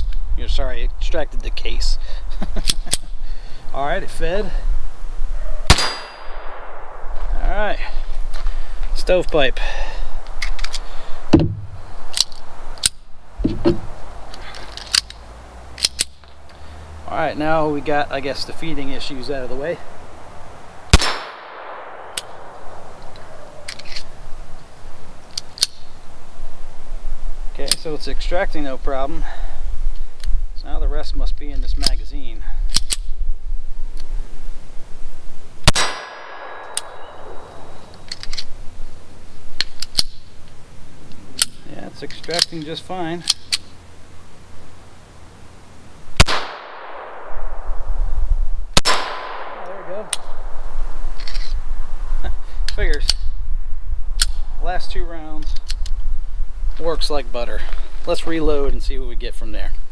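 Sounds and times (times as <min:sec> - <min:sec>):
pistol shot with ringing echo: 0:05.7 - 0:07.0, 0:20.9 - 0:22.6, 0:35.6 - 0:37.6, 0:46.2 - 0:47.8, 0:48.8 - 0:50.4
pistol handling clicks: 0:10.3 - 0:10.9, 0:12.1 - 0:13.0, 0:14.3 - 0:15.2, 0:15.8 - 0:16.6, 0:21.0 - 0:24.1, 0:25.3 - 0:25.9, 0:32.7 - 0:33.1, 0:35.7 - 0:37.0, 0:37.9 - 0:38.5, 0:39.6 - 0:43.7, 0:48.8 - 0:50.4, 0:54.2 - 0:54.4
pistol slide metallic clicks: 0:12.1 - 0:13.0, 0:14.3 - 0:15.2, 0:15.8 - 0:16.3, 0:25.3 - 0:25.9, 0:32.7 - 0:33.1, 0:39.6 - 0:40.2, 0:41.4 - 0:43.7, 0:54.2 - 0:54.4.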